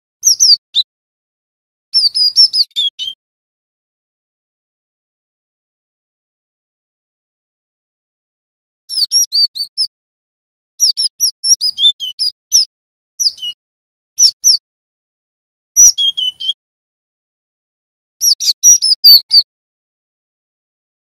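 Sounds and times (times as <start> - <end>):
bird chirping: 0.2 - 0.9, 2.0 - 3.2, 8.9 - 9.9, 10.8 - 13.6, 14.2 - 14.6, 15.8 - 16.6, 18.2 - 19.5.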